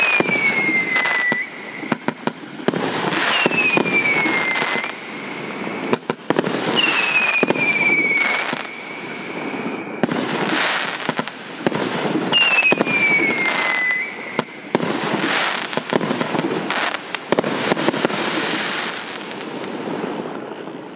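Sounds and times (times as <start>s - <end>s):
falling firework whistles: 0.0s - 20.9s
fireworks bursts with crackle: 0.0s - 20.9s.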